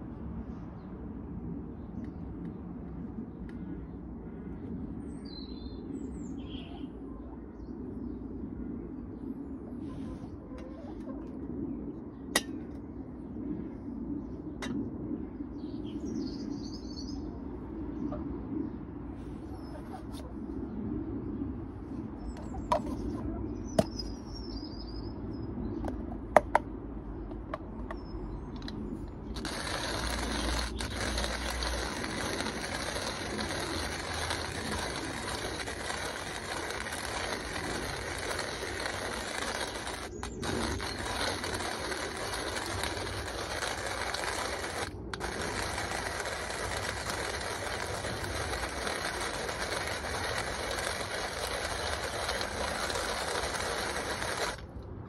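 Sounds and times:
hand grinder crunching coffee beans: 28.6 - 54.7.

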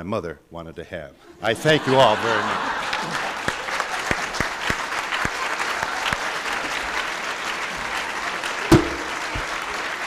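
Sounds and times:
audience applauding: 1.6 - 10.0
sharp knock: 8.7 - 9.2.

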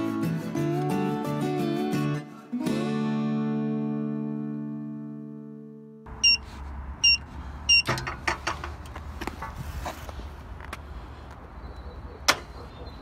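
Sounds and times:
keypad beeps: 6.2 - 6.4, 7.0 - 7.9.

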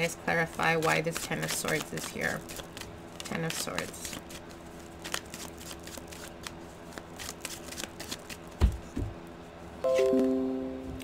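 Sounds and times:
cards being shuffled: 0.4 - 9.0.

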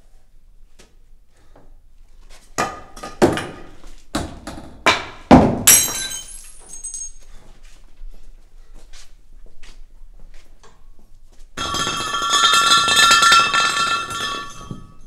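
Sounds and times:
objects clattering on floor: 11.6 - 15.0.

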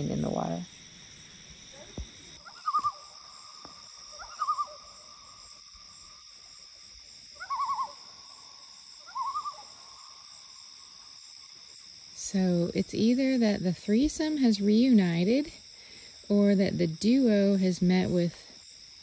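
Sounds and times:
loon tremolo calls: 0.0 - 11.1
crickets chirping: 0.0 - 19.0.

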